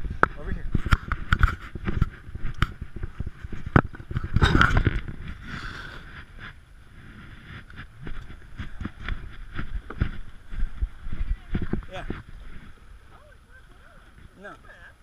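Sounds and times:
kayak hull scraping over sand: 0:01.5 - 0:13.0.

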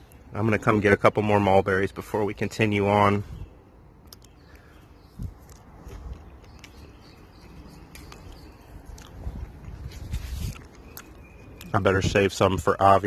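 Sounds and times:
light clicks of berries picked: 0:04.0 - 0:11.8
leaves and twigs rustling: 0:05.0 - 0:11.8.

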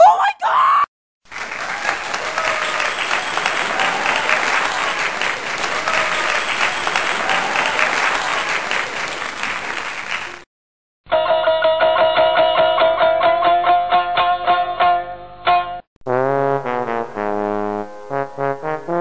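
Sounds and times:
crowd applauding: 0:01.3 - 0:10.5
plucked-string music: 0:11.1 - 0:15.8.

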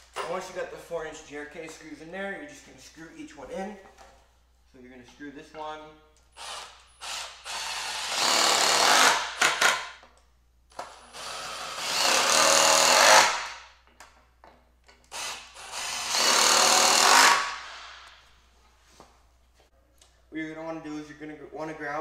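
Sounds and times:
cordless drill driving screws into wood: 0:06.4 - 0:10.0, 0:10.7 - 0:13.6, 0:15.1 - 0:18.2.

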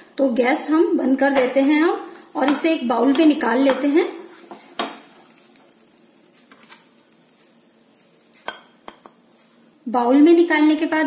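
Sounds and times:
faint sizzling: 0:00.0 - 0:11.0
spatula knocking on a pan: 0:02.4 - 0:05.1
spatula scraping thick food: 0:04.2 - 0:09.7.

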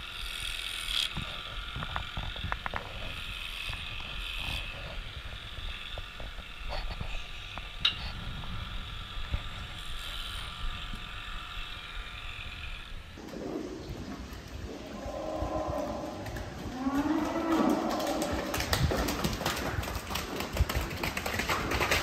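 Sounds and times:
electric clippers whining: 0:00.0 - 0:13.2.

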